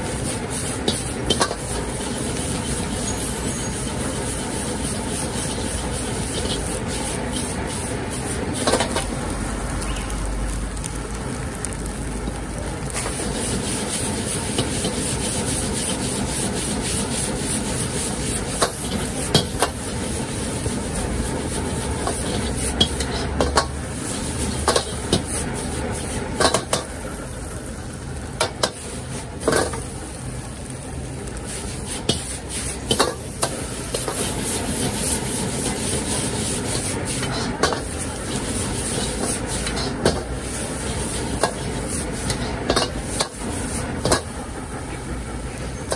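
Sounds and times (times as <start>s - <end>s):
gas burner rushing: 0.0s - 11.8s, 12.5s - 45.9s
food sizzling: 0.0s - 45.9s
metal ladle scraping wok: 0.2s - 9.1s, 13.0s - 26.9s, 31.5s - 44.4s.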